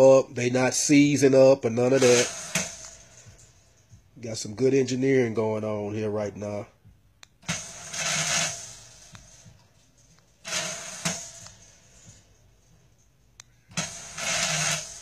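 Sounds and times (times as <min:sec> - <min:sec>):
click: 0:07.2 - 0:07.4, 0:13.4 - 0:13.6.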